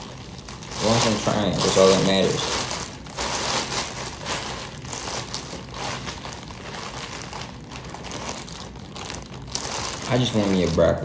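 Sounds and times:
food packaging crinkling: 0.0 - 11.0.

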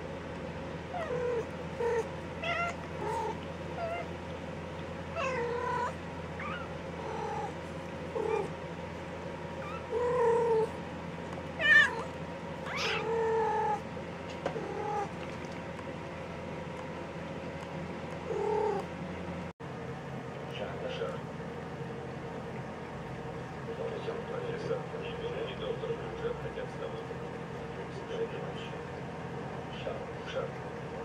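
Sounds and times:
cats mewing: 0.8 - 4.3, 5.0 - 8.9, 9.5 - 10.8, 11.4 - 15.4, 18.2 - 18.9.

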